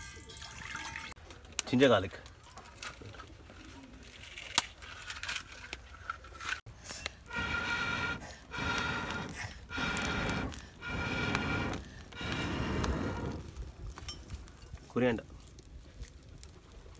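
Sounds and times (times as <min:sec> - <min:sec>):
breathy blasts through blow pipe: 0:06.8 - 0:13.5.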